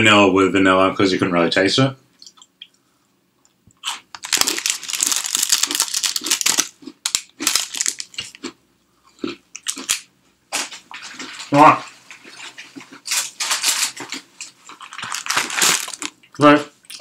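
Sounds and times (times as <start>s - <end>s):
plastic wrappers crinkling: 3.9s - 8.5s, 9.6s - 10.0s, 12.4s - 17.0s.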